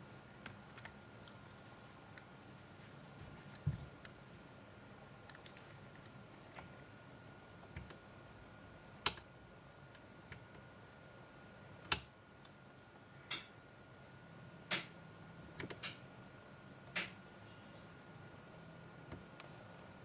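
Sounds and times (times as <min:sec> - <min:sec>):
faint high whine: 0:16.6 - 0:20.0.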